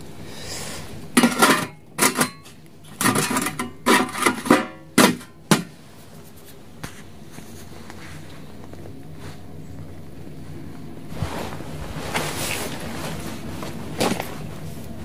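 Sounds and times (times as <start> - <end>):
metal lid clanking on can: 1.2 - 5.7.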